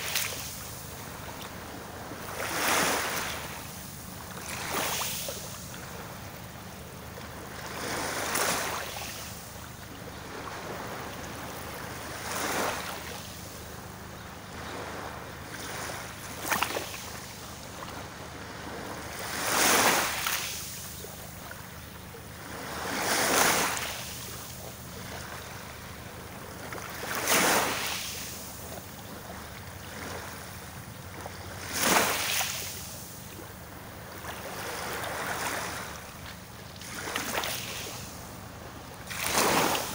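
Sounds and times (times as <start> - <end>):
small waves washing onto beach: 0.0 - 39.9
sharp water splashes: 39.0 - 39.9.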